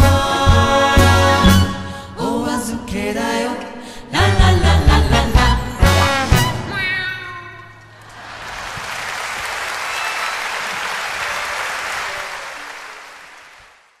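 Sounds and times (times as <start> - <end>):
audience applause: 8.0 - 14.0.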